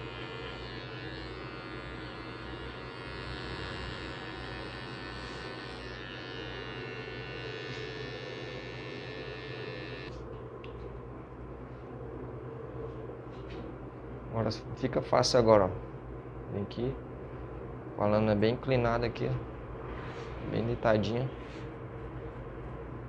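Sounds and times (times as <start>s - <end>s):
electric trimmer buzzing: 0.0s - 10.1s.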